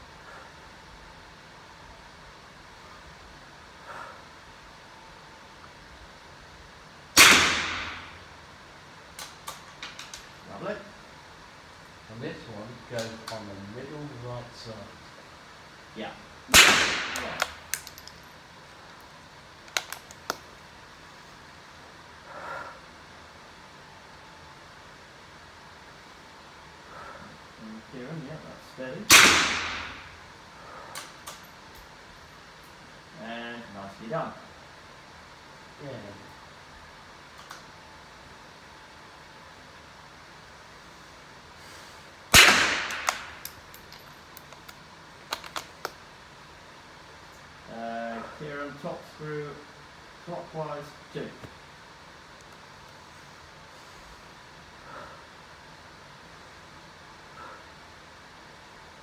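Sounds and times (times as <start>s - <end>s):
rifle shot: 7.2s - 8.2s, 16.5s - 17.6s, 29.1s - 30.2s, 42.3s - 43.5s
rifle handling clicks and knocks: 9.2s - 10.3s, 17.2s - 18.4s, 19.6s - 20.5s, 42.9s - 46.0s.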